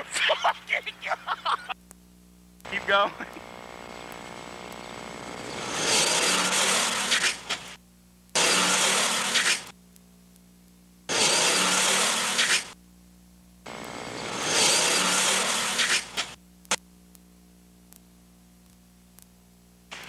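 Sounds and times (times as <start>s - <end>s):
car engine at full throttle: 13.7s - 16.2s.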